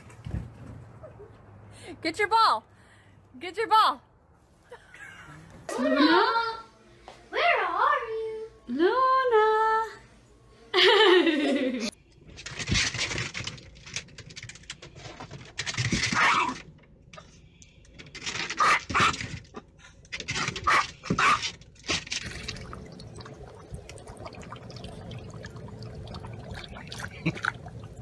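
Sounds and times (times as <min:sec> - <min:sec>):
water sloshing in bowl: 0:21.9 - 0:28.0.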